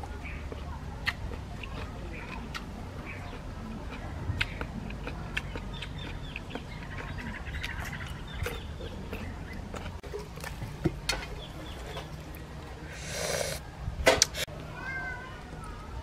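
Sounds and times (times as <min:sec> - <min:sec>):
chewing and lip-smacking: 0:00.0 - 0:10.6
chickens clucking: 0:00.2 - 0:12.2
short breathy hiss: 0:12.9 - 0:13.6.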